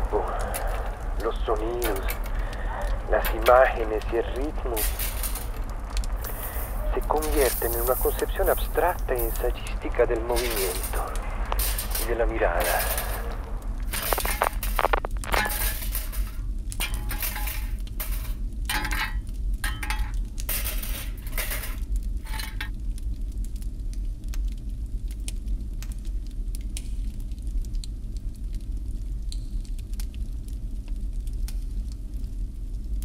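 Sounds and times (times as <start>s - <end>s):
steady low hum: 0.0s - 22.8s.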